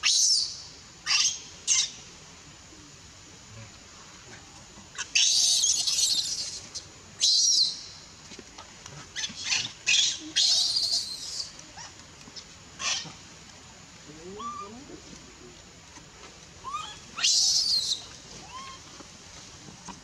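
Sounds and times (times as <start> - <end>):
baby monkey screaming: 1.1 - 1.9, 5.0 - 7.8, 9.2 - 11.5, 14.4 - 14.8, 16.6 - 18.8.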